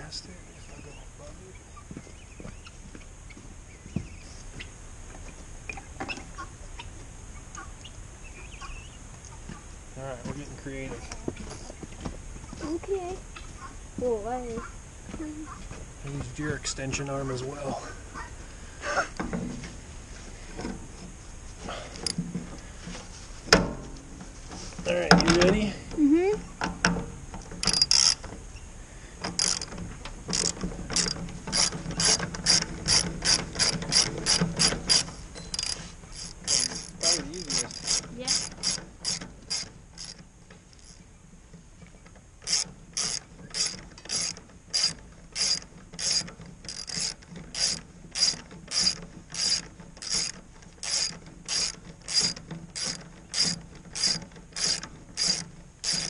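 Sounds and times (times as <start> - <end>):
ratchet wrench clicking: 21.9 - 22.2, 27.6 - 28.3, 29.2 - 29.7, 30.3 - 40.2, 42.4 - 56.0.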